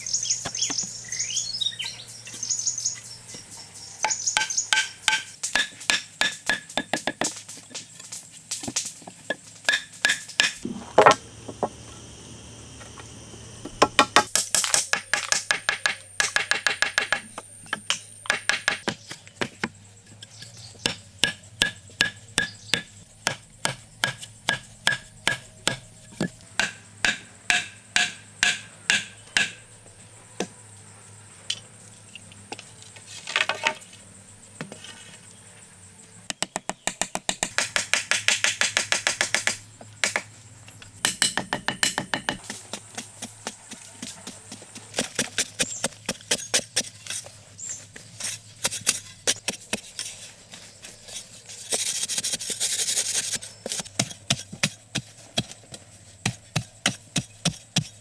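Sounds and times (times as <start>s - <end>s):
wooden mallet striking wood: 4.4s - 7.3s, 13.8s - 19.0s, 20.9s - 29.6s, 41.0s - 42.5s.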